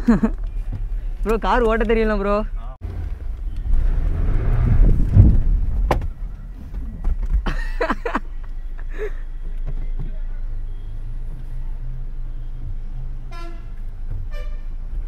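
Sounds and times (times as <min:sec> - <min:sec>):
car engine running: 0:02.8 - 0:11.6.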